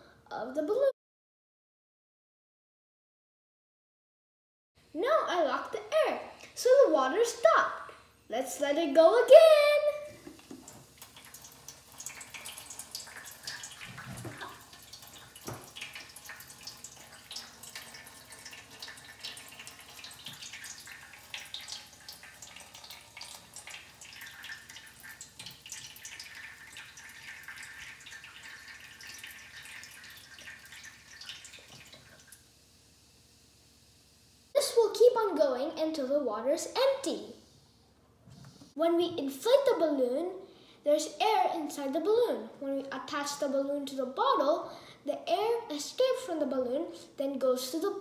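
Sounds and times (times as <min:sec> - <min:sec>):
water trickling into tray: 0:10.4 - 0:32.4.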